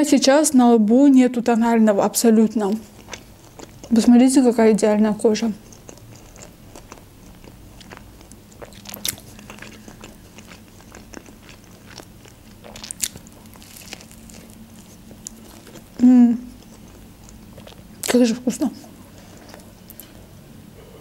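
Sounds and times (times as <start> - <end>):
chewing sandwich: 2.7 - 4.1, 5.5 - 18.2, 18.8 - 20.2.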